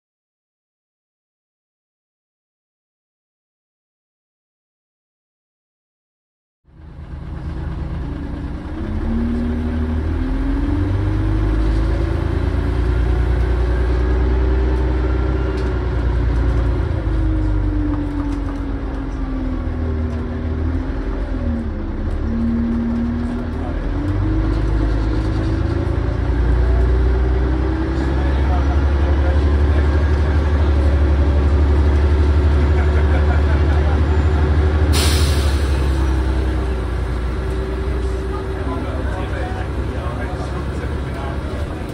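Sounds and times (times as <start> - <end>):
bus engine rumble: 6.7 - 41.9.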